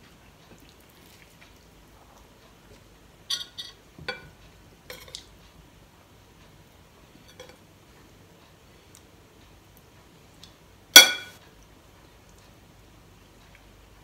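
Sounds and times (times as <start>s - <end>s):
spoon clinking on ceramic bowl: 11.0s - 11.4s.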